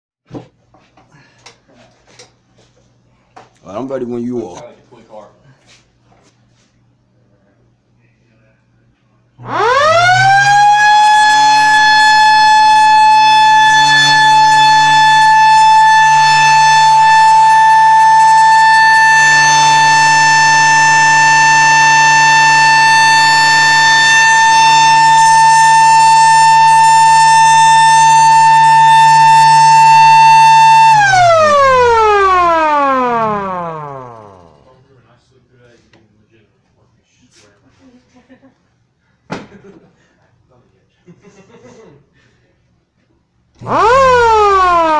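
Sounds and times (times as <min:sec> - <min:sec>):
siren wailing: 0:09.4 - 0:34.7, 0:43.6 - 0:44.9.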